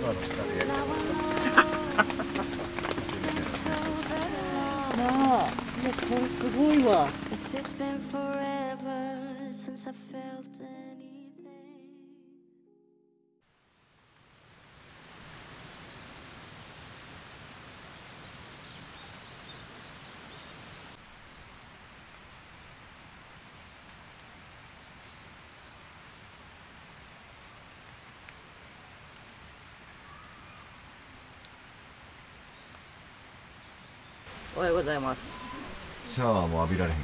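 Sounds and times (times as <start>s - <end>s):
rain hissing on wet ground: 0.0s - 8.6s, 13.6s - 37.0s
raindrops ticking: 0.0s - 8.6s.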